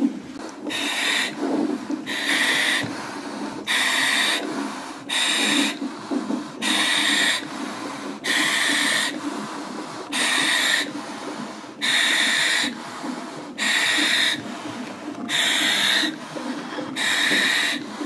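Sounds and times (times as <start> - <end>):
quiet breathing out: 0.0 - 18.0
hissing inhalation through valve: 0.6 - 18.0.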